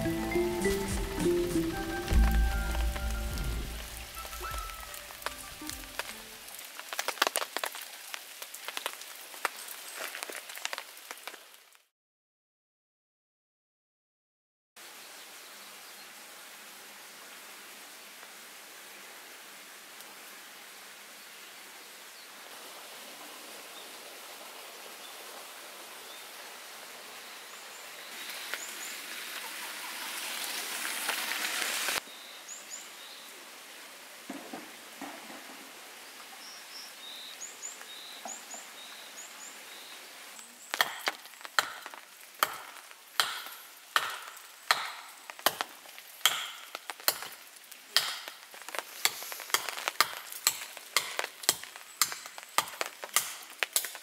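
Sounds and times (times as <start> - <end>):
steady outdoor hiss: 0.0 - 11.6, 14.8 - 54.0
faint bird chirps: 2.4 - 6.0
wood being chopped: 40.8 - 47.4, 48.0 - 48.4, 49.0 - 54.0.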